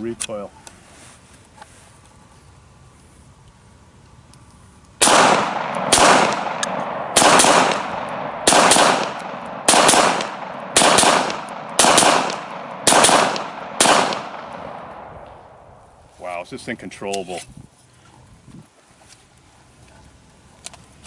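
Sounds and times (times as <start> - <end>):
pistol shots with echo: 5.0 - 15.7.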